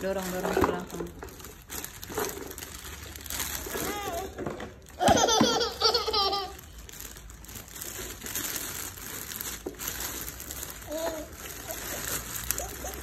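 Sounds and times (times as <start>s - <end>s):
plastic wrapping crinkling: 0.0s - 13.0s
young child laughing: 5.0s - 6.6s.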